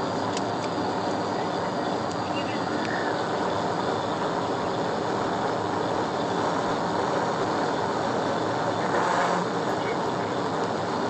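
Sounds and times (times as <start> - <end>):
car engine drone: 0.0 - 11.0
road and tyre noise: 0.0 - 11.0.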